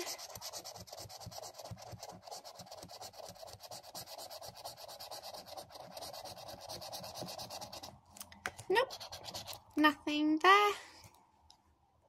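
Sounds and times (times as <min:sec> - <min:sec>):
scratchcard being scratched: 0:00.0 - 0:07.9, 0:08.7 - 0:09.7.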